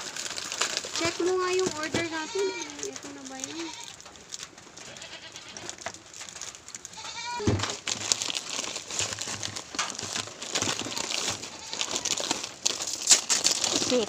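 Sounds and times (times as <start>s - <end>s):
plastic bags crinkling: 0.0s - 14.0s
goat bleating: 2.0s - 4.0s, 4.8s - 5.8s, 6.9s - 7.6s, 11.5s - 11.8s.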